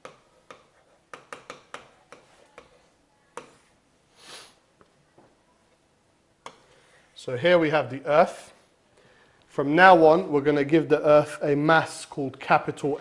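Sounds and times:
stylus tapping on tablet: 0.0s - 3.6s
stylus scratching on tablet: 0.0s - 3.8s.

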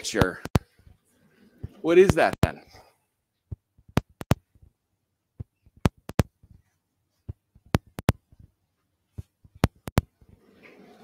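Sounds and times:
light sharp taps and clicks: 0.1s - 0.9s, 3.5s - 4.7s, 5.4s - 10.2s.

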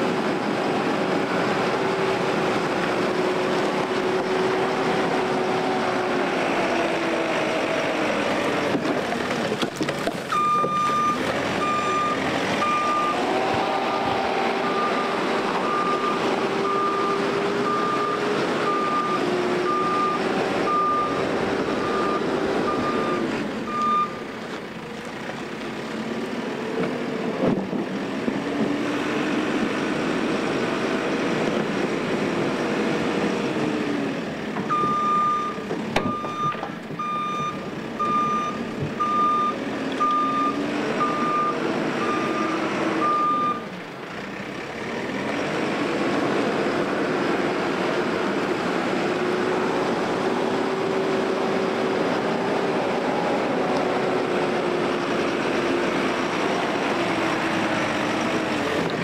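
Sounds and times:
diesel engine running under load: 0.0s - 59.0s
reversing alarm beeping: 10.3s - 13.3s, 14.6s - 24.2s, 34.7s - 43.6s.

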